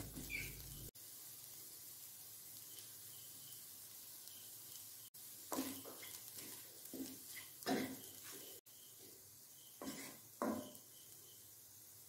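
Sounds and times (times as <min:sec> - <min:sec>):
faint sizzle: 0:00.0 - 0:12.0
spatula scraping a pan: 0:05.5 - 0:09.0, 0:09.6 - 0:10.9.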